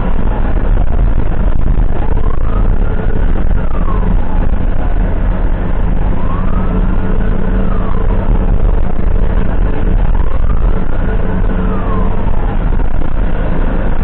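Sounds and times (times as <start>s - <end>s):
ambulance siren wailing: 0.0s - 14.0s
engine and tyres rumbling: 0.0s - 14.0s.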